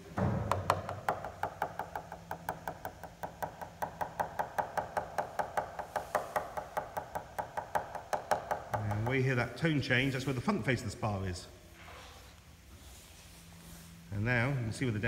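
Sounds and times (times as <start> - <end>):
tool tapping composite wing: 0.2 - 9.4.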